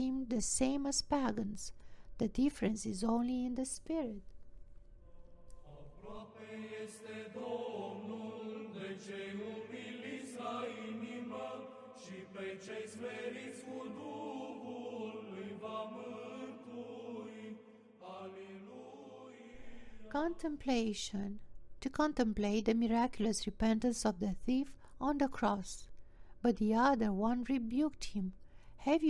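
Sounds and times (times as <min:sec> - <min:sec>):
slow sung chant: 0:05.0 - 0:20.4.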